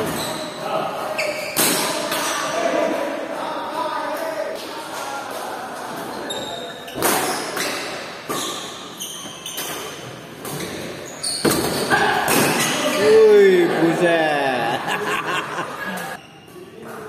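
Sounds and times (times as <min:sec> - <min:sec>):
shoe squeaks: 0:00.0 - 0:01.7, 0:06.1 - 0:11.9, 0:16.2 - 0:16.8.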